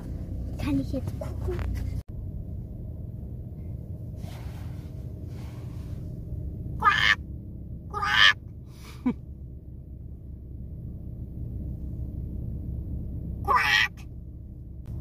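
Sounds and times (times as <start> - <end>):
car low rumble: 0.0 - 15.0
harsh animal calls: 6.8 - 7.2, 7.9 - 8.4, 13.4 - 14.0.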